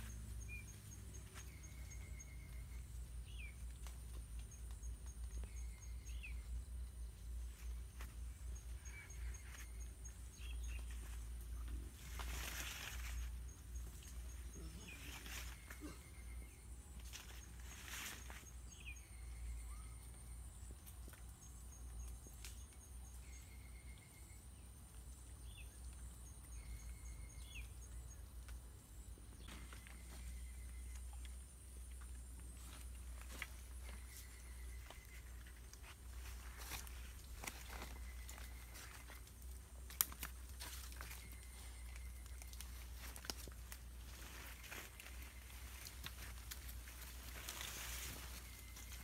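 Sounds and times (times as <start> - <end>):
rustling in dry leaves: 0.0 - 20.1, 32.3 - 49.0
twigs snapping: 38.8 - 41.1.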